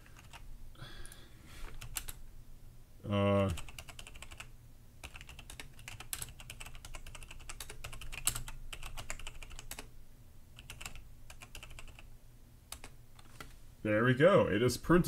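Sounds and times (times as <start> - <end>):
computer keyboard typing: 0.0 - 0.4, 1.7 - 2.2, 3.4 - 9.9, 10.5 - 12.1, 12.7 - 13.5.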